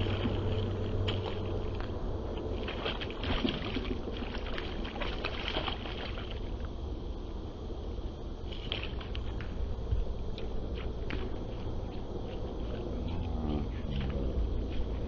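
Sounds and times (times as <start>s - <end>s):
low steady hum: 0.0s - 15.0s
fish splashing at water surface: 2.4s - 6.6s.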